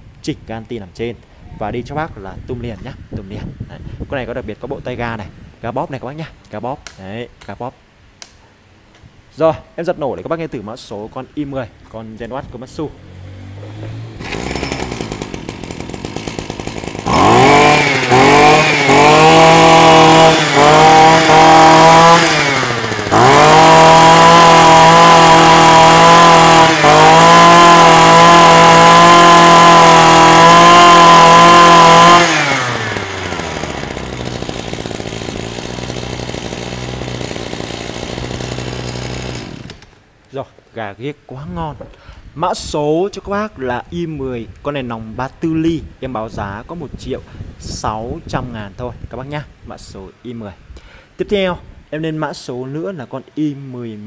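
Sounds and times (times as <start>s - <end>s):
brush cutter engine revving: 12.9s - 40.0s.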